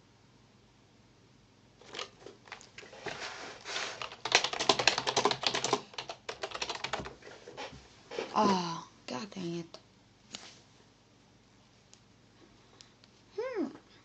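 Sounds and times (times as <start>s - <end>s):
typing on keyboard: 1.8s - 2.7s, 4.0s - 7.2s.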